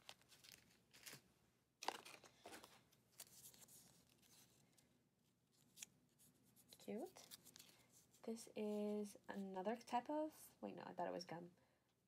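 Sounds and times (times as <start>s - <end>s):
candy wrappers crinkling: 0.0s - 4.8s, 6.7s - 7.9s.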